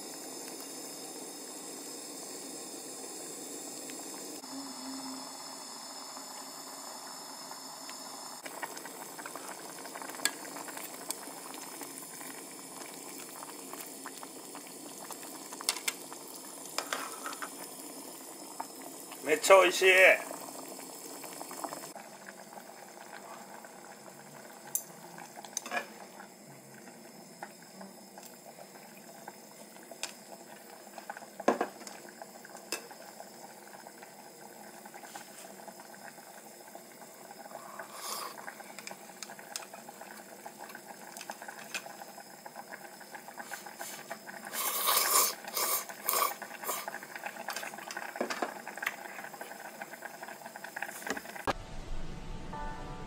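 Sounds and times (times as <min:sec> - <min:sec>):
soup simmering in a pot: 0:00.0 - 0:51.5
slurping hot noodles: 0:37.4 - 0:38.7, 0:43.4 - 0:47.4.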